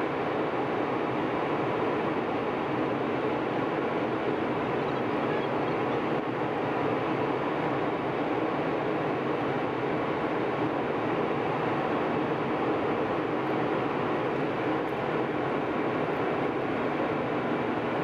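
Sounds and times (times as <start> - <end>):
jet airliner cabin drone: 0.0 - 18.0.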